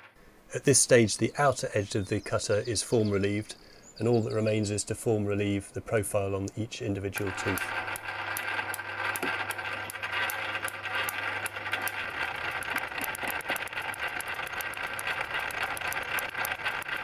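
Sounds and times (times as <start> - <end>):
milling machine clicking: 7.2 - 17.0.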